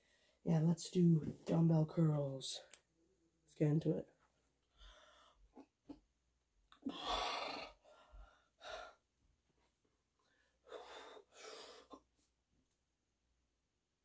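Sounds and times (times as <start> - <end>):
heavy breathing from exertion: 4.7 - 5.5.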